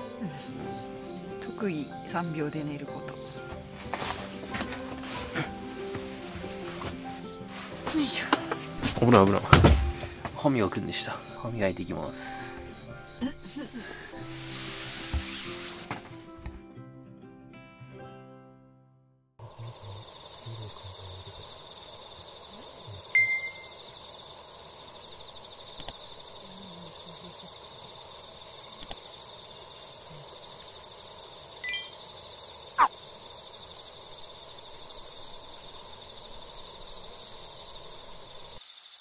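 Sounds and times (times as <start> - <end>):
insect chorus trilling: 0.0 - 15.5, 19.4 - 39.0
background music: 0.0 - 18.8
brief chirps: 23.2 - 23.7.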